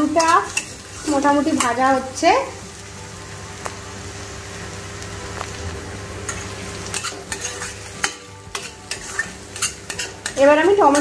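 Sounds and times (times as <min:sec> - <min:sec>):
potatoes sizzling in a pan: 0:00.0 - 0:11.0
utensil scraping a pan: 0:06.3 - 0:11.0.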